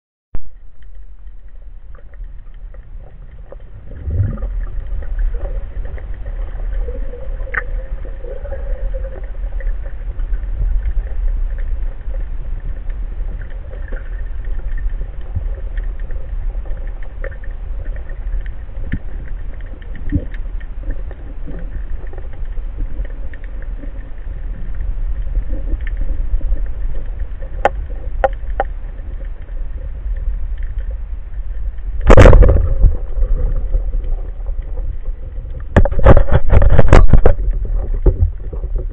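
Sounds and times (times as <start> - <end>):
small clicks and crackles: 0.5 - 38.9
water rumbling against housing: 32.0 - 38.9.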